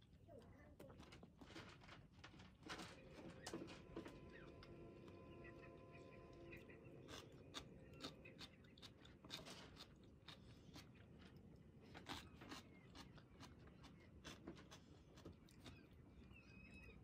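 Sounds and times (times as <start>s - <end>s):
person chewing crunchy food: 7.0s - 16.4s.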